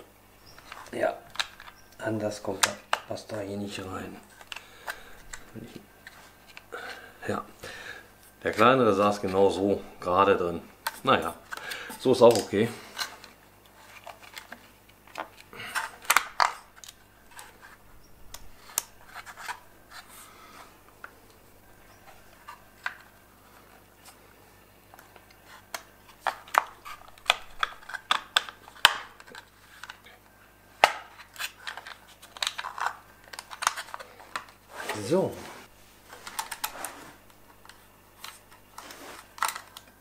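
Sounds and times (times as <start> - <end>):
small clicks taps and scrapes: 36.1 - 40.0.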